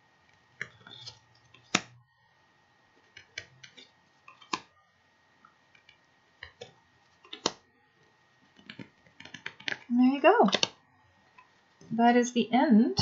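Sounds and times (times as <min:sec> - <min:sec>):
cards snapping and flicking: 0:00.6 - 0:01.9, 0:03.2 - 0:04.7, 0:07.3 - 0:07.6.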